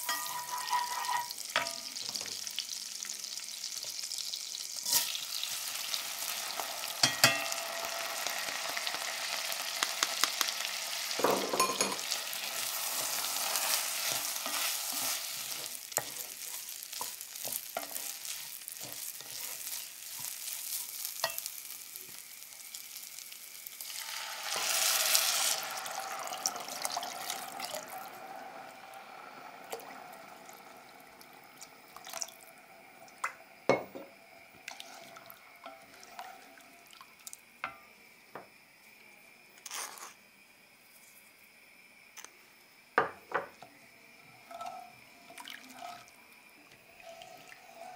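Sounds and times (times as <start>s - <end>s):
wooden spatula scraping a pot: 0.0s - 1.4s, 13.0s - 20.8s
rice sizzling in a pot: 0.0s - 47.9s
water poured into hot pot: 23.8s - 33.4s, 34.6s - 37.4s, 45.3s - 46.1s.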